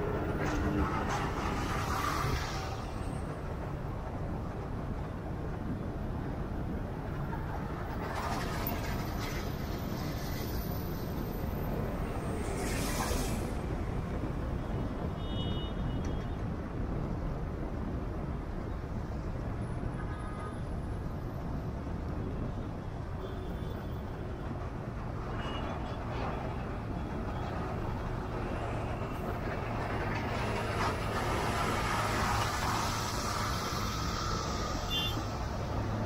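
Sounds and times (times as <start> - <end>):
car road and engine rumble: 24.3 - 36.0
hissing of passing trucks: 29.6 - 36.0.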